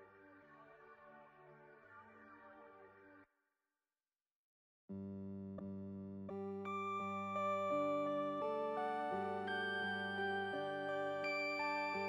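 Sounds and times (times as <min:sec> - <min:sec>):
music with mallet bell tones: 0:07.4 - 0:12.0.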